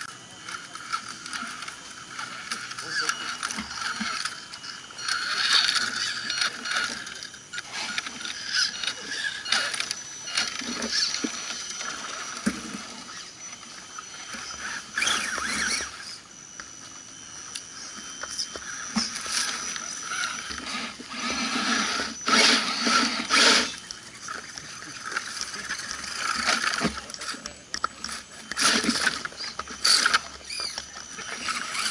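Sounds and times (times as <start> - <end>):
toy truck motors whirring: 0.0 - 31.9
wheels over dry leaves: 0.0 - 31.9.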